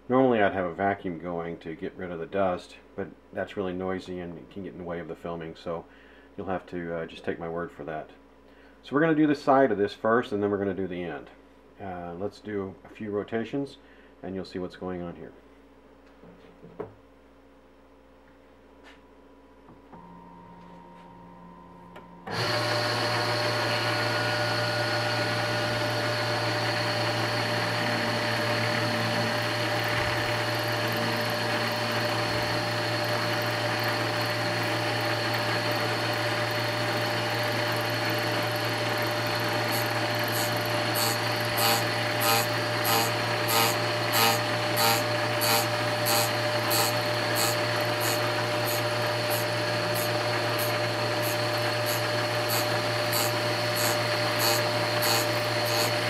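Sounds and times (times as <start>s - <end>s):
lathe motors humming: 22.3s - 56.0s
cutter scraping wood: 38.7s - 56.0s.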